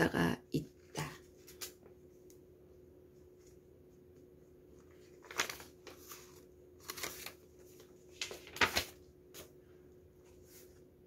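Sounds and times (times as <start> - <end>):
faint steady hum: 0.0 - 11.0
paper rustling and crinkling: 4.7 - 9.6.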